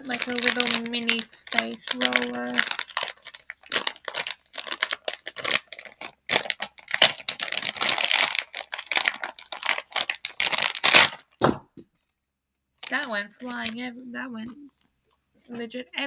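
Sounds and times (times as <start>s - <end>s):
plastic packet crinkling: 0.0s - 11.4s, 12.8s - 13.9s.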